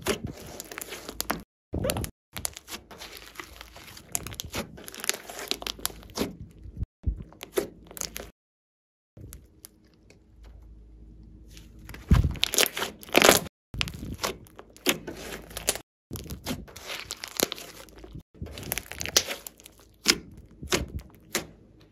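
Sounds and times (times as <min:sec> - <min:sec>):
slime squelching and crackling: 0:00.0 - 0:06.6, 0:07.3 - 0:08.3, 0:11.5 - 0:21.4.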